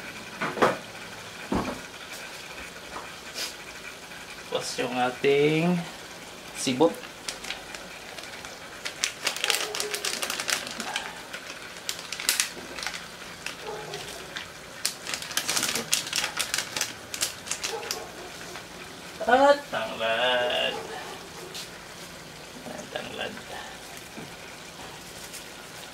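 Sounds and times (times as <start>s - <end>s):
plastic sachet crackling: 6.9s - 18.7s.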